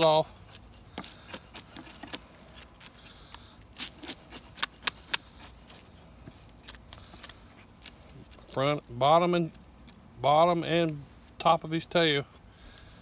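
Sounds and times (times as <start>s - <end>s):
knife scraping fish scales: 0.4s - 8.8s.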